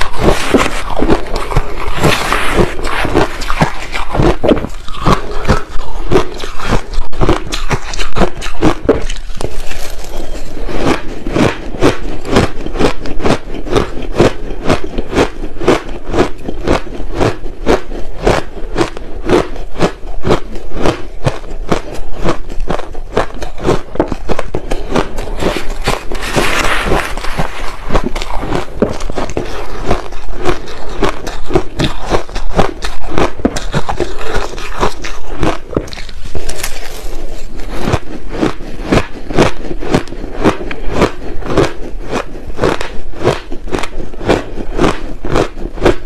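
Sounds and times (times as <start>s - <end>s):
ice being chewed: 0.0s - 46.0s.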